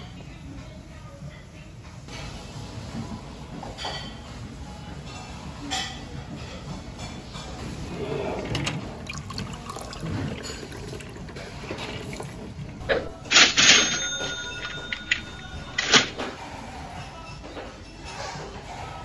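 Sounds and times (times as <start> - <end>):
water pouring into a glass: 8.3 - 13.3
faint ringing tone: 12.8 - 16.3.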